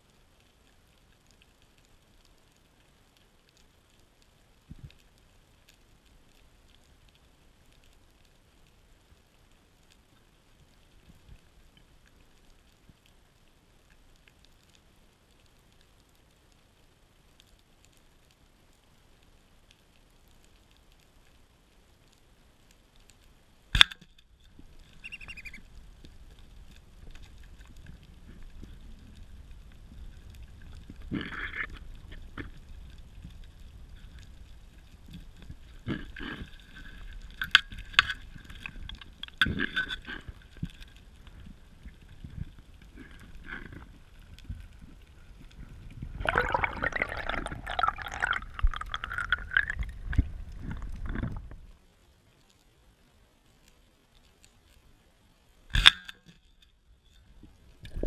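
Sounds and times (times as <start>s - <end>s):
faint underwater hiss: 0.0s - 56.1s
short clicks and crackles: 17.3s - 51.8s.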